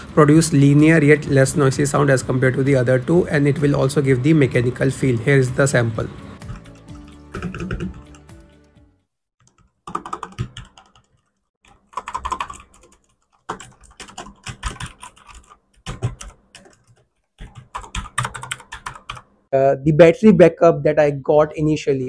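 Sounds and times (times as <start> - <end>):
mechanical keyboard typing: 6.4 - 8.4, 9.4 - 19.2.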